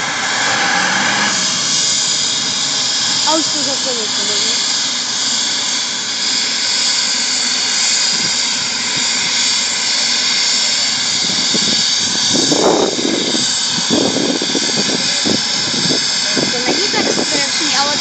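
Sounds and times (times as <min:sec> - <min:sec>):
helicopter engine whine and rotor: 0:00.0 - 0:18.0
faint voices: 0:14.7 - 0:18.0.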